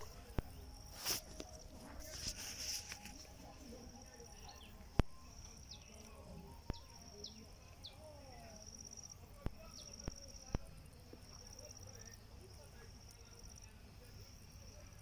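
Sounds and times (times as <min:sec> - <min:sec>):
insect trilling: 0:03.0 - 0:15.0
bird chirping: 0:03.9 - 0:10.7.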